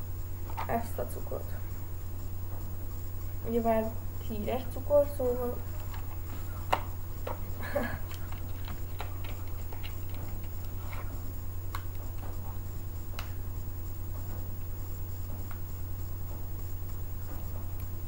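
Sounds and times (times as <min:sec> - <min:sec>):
steady low hum: 0:00.0 - 0:18.0
small clicks and taps: 0:08.1 - 0:11.0.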